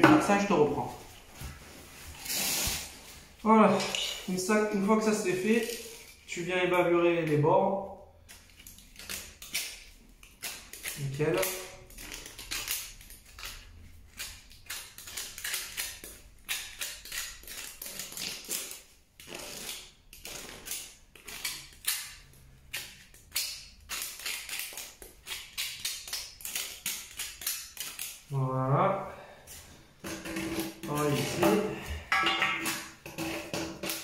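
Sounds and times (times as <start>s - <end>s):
tool scraping plastic pipe edge: 30.0s - 31.9s, 32.6s - 34.0s.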